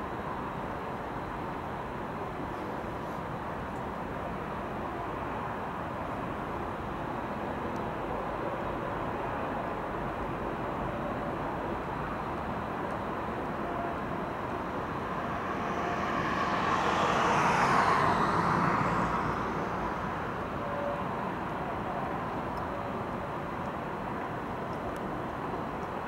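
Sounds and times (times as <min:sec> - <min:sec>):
urban traffic noise: 0:00.0 - 0:26.0
vehicle passing by: 0:13.5 - 0:21.5.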